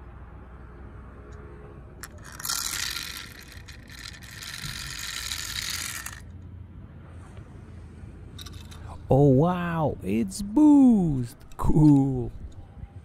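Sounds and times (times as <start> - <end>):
toy cars rattling and scraping: 2.0 - 6.4, 8.3 - 9.1.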